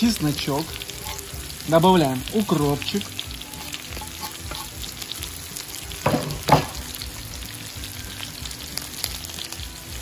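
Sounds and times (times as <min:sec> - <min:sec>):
potatoes and meat sizzling: 0:00.0 - 0:10.0.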